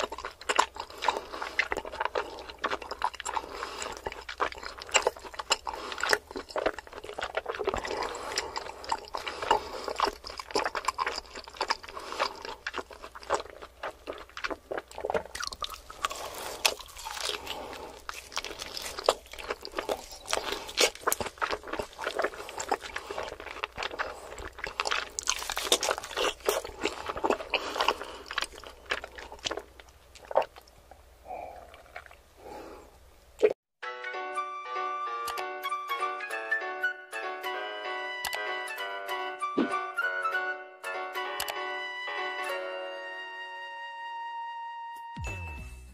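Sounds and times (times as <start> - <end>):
wet chewing mouth sounds: 0.0 - 32.3.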